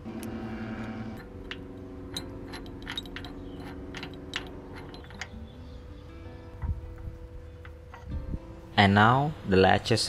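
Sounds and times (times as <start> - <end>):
metallic clinks of wrench: 1.2 - 5.4.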